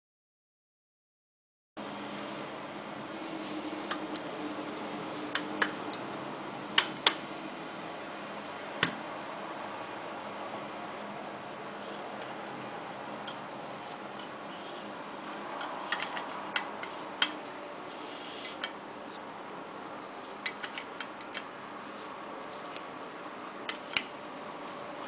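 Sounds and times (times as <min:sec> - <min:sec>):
steady hiss: 0:01.8 - 0:25.0.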